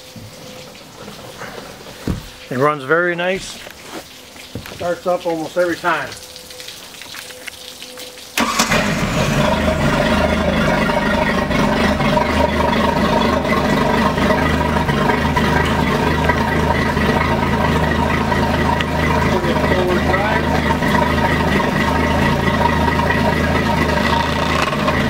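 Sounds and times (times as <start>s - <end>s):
boat engine starting and idling: 8.4s - 25.0s.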